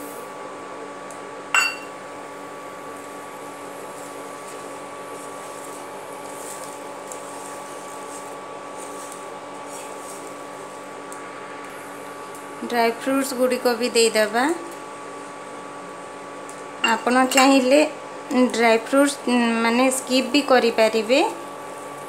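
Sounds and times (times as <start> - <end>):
induction cooktop hum and whine: 0.0 - 22.0
sharp clink: 1.6 - 1.9.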